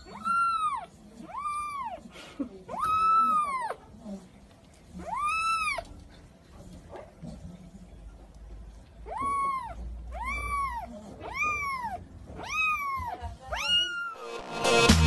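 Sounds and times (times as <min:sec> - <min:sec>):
kitten meowing: 0:02.7 - 0:03.8, 0:05.0 - 0:05.9, 0:09.1 - 0:14.2.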